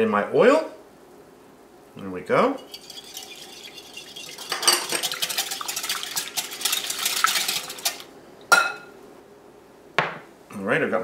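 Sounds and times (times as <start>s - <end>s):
whisk clicking against glass bowl: 2.6s - 8.1s.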